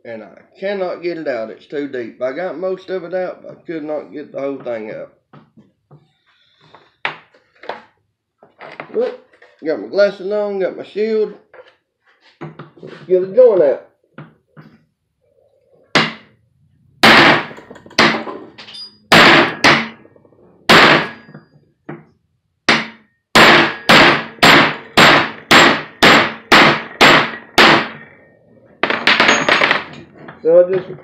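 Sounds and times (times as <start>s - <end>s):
hammer striking metal: 15.9s - 16.3s, 17.0s - 20.1s, 20.7s - 21.4s, 22.7s - 28.2s.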